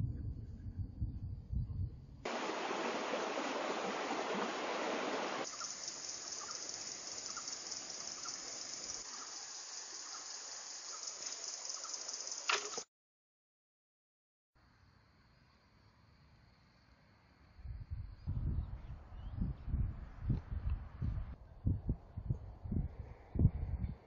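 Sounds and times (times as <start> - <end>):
high-pitched hiss: 2.3 - 12.8.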